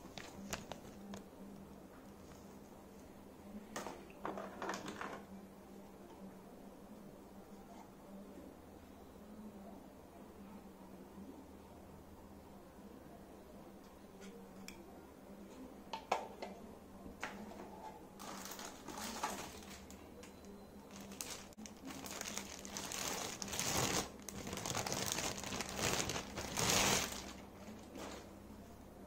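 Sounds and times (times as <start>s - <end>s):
plastic bag crinkling: 18.2s - 20.3s, 20.9s - 28.3s.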